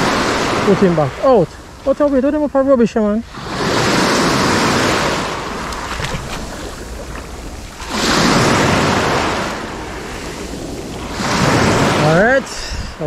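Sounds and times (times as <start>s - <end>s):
small waves washing up beach: 0.0s - 13.0s
wind rumble on microphone: 3.3s - 13.0s.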